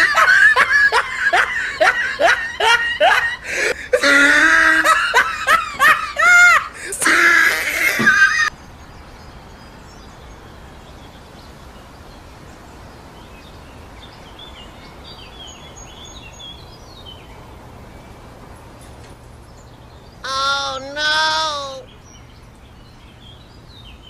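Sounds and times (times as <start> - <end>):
outdoor background noise: 0.0 - 24.0
high-pitched voice crying out: 3.9 - 8.5, 20.2 - 21.9.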